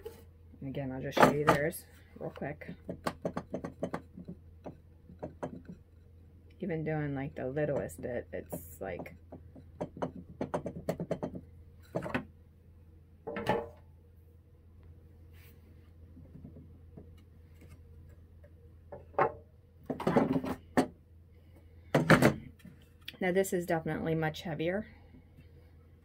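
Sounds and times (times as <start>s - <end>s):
knocks and scrapes on saw table: 18.9s - 20.9s.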